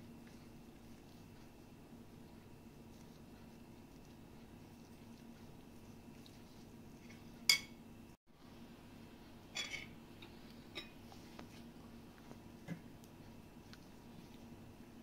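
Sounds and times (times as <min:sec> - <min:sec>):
faint steady hum: 0:00.0 - 0:15.0
dishes and utensils clinking: 0:07.1 - 0:07.8, 0:09.5 - 0:10.0.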